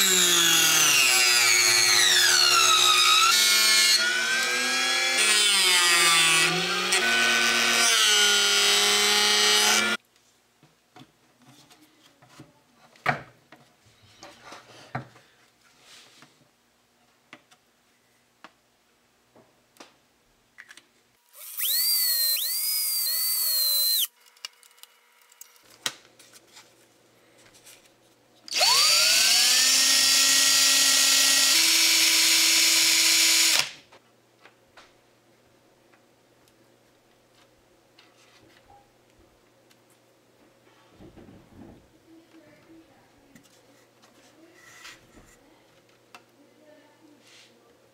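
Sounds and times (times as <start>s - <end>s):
small electric drill: 0.0s - 10.0s, 21.3s - 24.2s, 28.5s - 33.8s.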